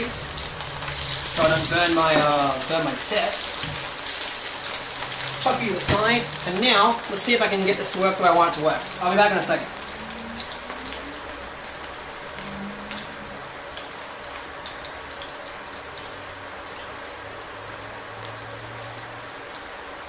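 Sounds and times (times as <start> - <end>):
oil sizzling in a frying pan: 0.0 - 20.0
low hum: 9.6 - 14.1.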